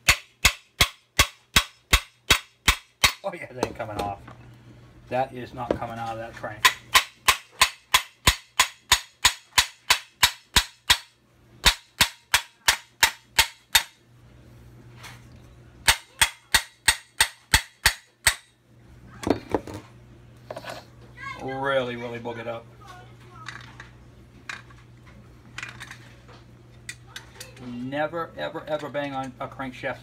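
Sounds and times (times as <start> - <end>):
hammer striking metal: 0.0 - 3.2, 6.6 - 14.0, 15.9 - 18.6.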